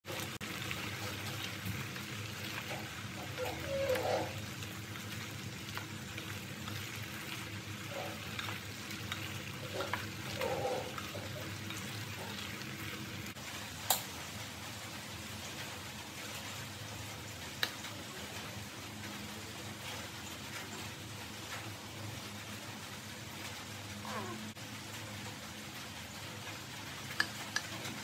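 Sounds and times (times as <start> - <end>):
wooden spatula stirring wet food: 0.1 - 13.4.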